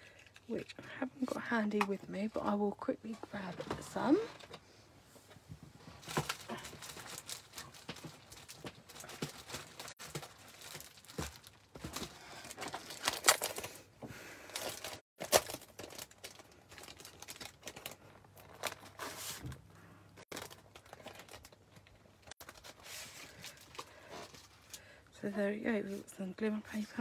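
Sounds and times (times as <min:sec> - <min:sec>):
paper rustling and crinkling: 0:05.8 - 0:13.8, 0:14.5 - 0:24.8.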